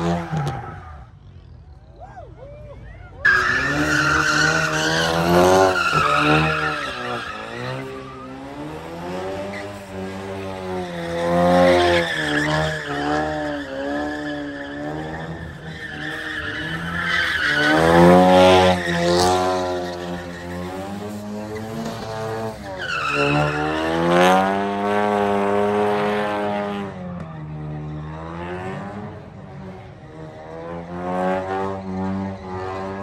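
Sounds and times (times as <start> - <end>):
tyres squealing on pavement: 0.0 - 1.6, 2.8 - 24.3
car engine revving: 3.3 - 33.0.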